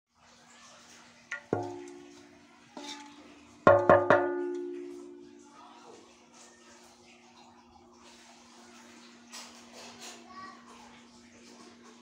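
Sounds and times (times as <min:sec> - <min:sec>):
metal spoon knocking on ringing pot: 0:01.3 - 0:02.2, 0:02.8 - 0:05.3.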